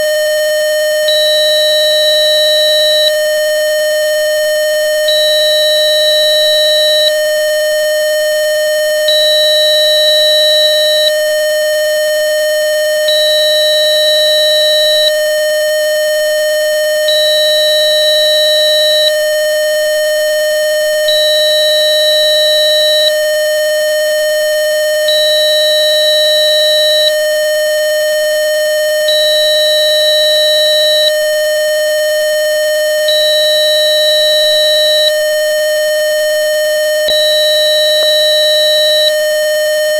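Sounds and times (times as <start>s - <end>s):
steady electronic test tone: 0.0s - 3.4s, 4.1s - 7.6s, 9.0s - 11.3s, 16.4s - 23.3s, 29.0s - 39.9s.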